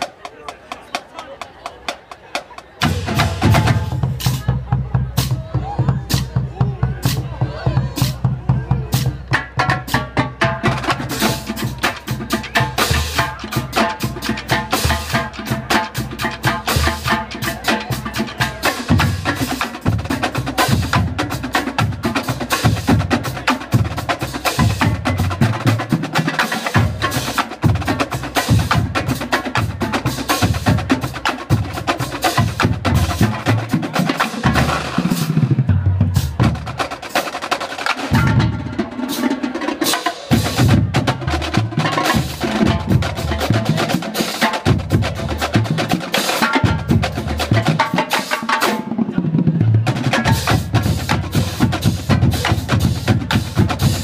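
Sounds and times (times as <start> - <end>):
tenor drums: 0.0 - 54.0
snare drum rolls: 18.6 - 54.0.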